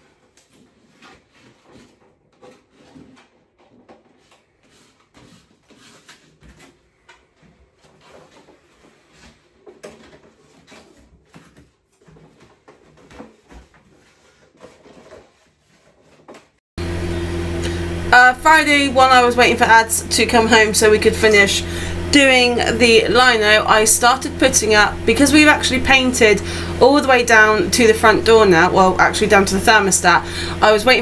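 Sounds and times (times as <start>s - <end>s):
paper rustling and crinkling: 0.0s - 16.6s.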